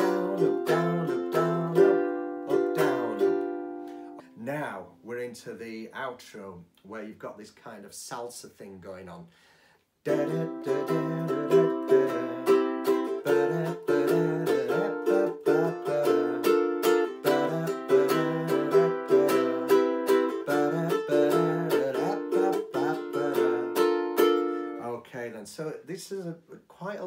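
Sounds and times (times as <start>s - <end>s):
ukulele strumming: 0.0s - 4.4s, 10.1s - 24.8s.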